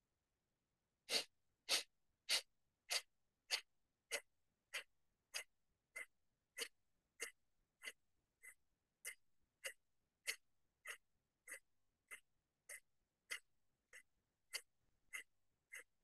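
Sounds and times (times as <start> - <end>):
forceful nasal exhalations: 1.1 - 3.0.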